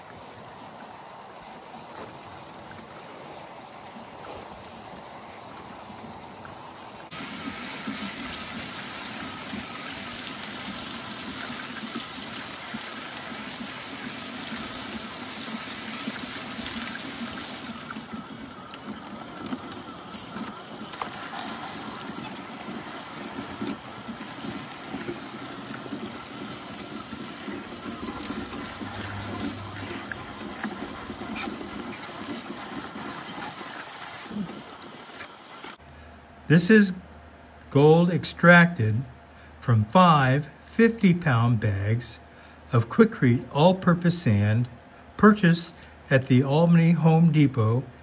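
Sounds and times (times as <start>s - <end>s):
water splashing into funnel: 7.1s - 35.7s.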